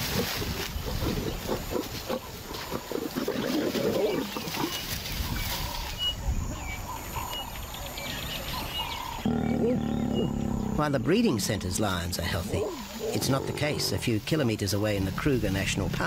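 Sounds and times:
lions growling and snarling: 0.0s - 5.0s, 8.8s - 14.1s.

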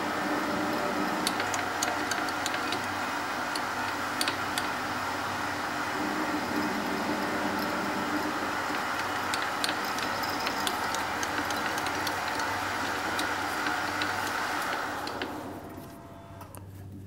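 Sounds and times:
drill boring into metal: 0.0s - 15.4s
metal lathe running: 0.0s - 15.9s.

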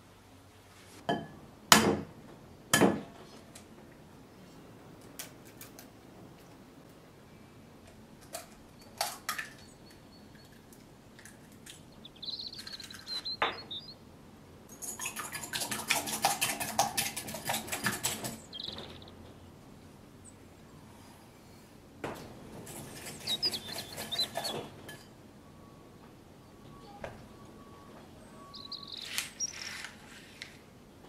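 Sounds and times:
egg cracking clicks and taps: 7.8s - 13.8s, 14.8s - 19.1s.

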